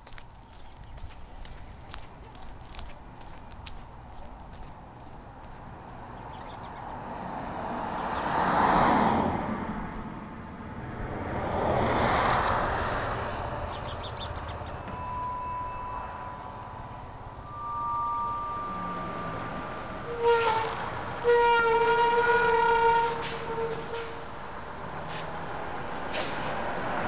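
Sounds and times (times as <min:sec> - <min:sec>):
birds chirping: 0:00.0 - 0:07.1, 0:07.8 - 0:08.4, 0:13.3 - 0:18.8
vehicles passing by: 0:00.0 - 0:21.4, 0:23.2 - 0:27.0
steady high tone: 0:14.3 - 0:20.2.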